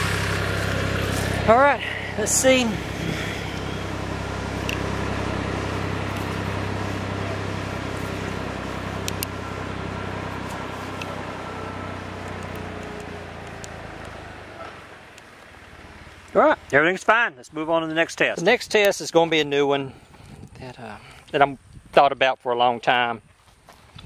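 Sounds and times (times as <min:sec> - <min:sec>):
tractor diesel engine running: 0:00.0 - 0:18.9.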